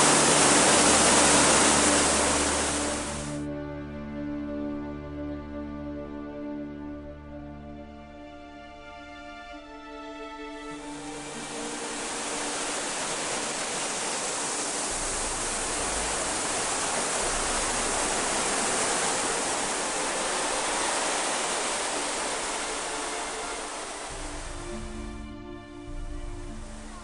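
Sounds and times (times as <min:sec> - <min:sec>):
waterfall rushing: 0:00.0 - 0:03.4, 0:10.7 - 0:25.3, 0:25.9 - 0:27.0.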